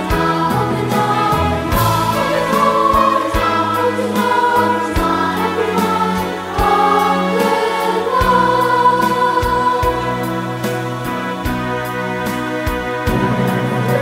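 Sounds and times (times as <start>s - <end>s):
boys' choir singing: 0.0s - 12.3s, 13.1s - 14.0s
instrumental accompaniment: 0.0s - 14.0s.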